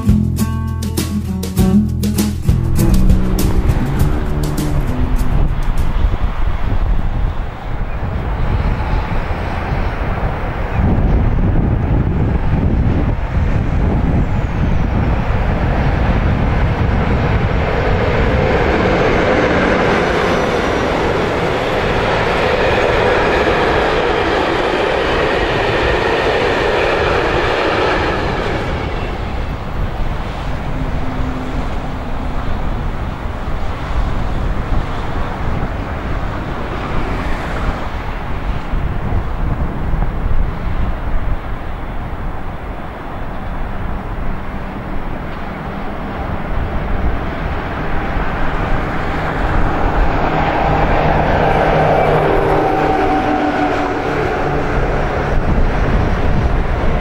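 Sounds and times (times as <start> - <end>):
freight train rolling past: 0.0 - 57.0
wind rumble on microphone: 2.4 - 57.0.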